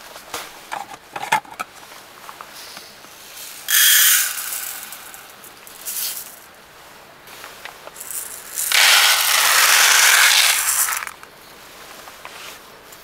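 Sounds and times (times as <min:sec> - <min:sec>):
rice grains pouring: 0:03.7 - 0:06.4, 0:08.0 - 0:11.2.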